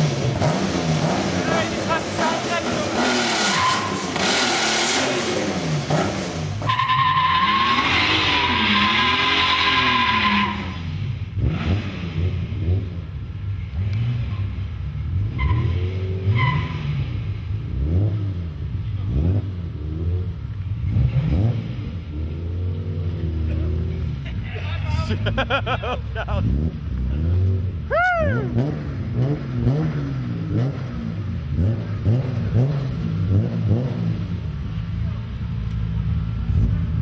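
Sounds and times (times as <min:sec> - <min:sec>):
car engine revving: 0:00.0 - 0:37.0
tyre screech: 0:03.3 - 0:04.2, 0:06.6 - 0:10.9, 0:15.4 - 0:16.9.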